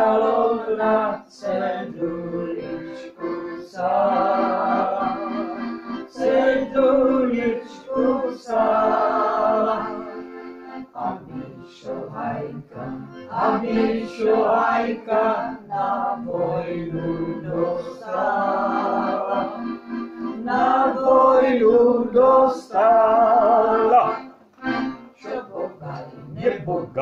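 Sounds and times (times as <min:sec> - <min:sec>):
accordion chords: 0:00.0 - 0:27.0
old man singing folk song: 0:06.1 - 0:10.1, 0:20.5 - 0:24.3, 0:25.2 - 0:27.0.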